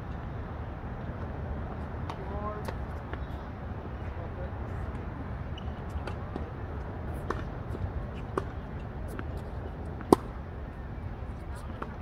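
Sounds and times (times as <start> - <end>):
tennis ball hitting rackets: 7.1 - 10.4.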